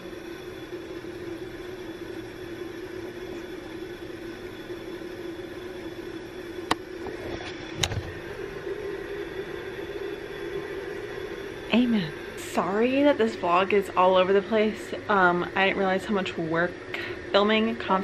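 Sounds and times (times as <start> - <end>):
indoor hum: 0.0 - 18.0.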